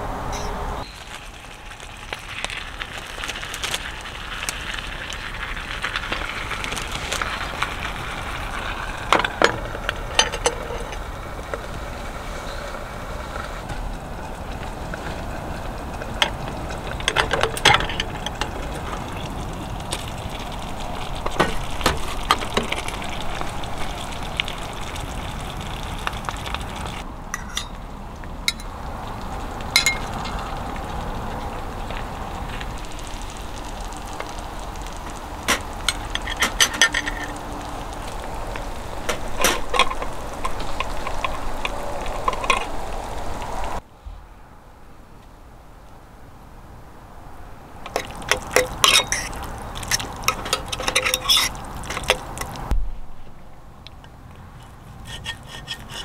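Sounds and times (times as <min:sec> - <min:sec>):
metal utensil clinking on pan: 0:27.3 - 0:27.8, 0:47.9 - 0:52.2.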